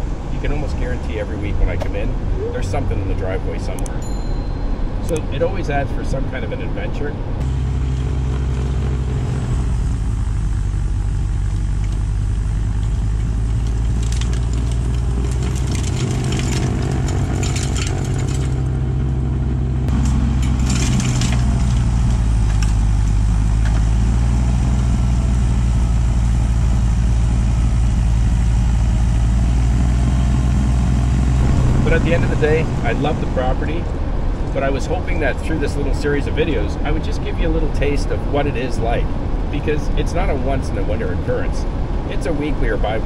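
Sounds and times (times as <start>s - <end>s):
vehicle engine running: 0.0s - 43.0s
crackling and crunching: 11.5s - 18.8s.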